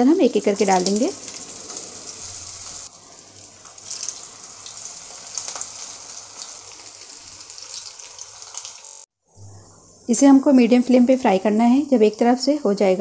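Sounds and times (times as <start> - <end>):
cutlets sizzling in hot oil: 0.0 - 9.1.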